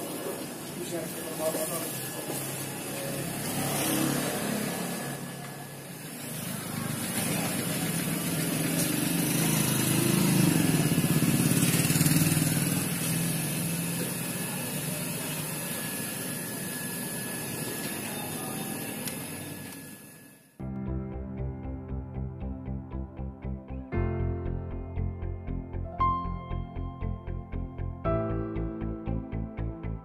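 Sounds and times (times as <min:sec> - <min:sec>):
vehicle engine running: 0:02.6 - 0:14.8.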